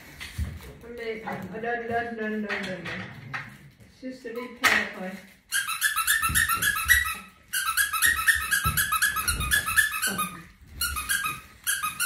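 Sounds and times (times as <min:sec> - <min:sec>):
squeaky dog toy squeaking: 0:05.5 - 0:12.0.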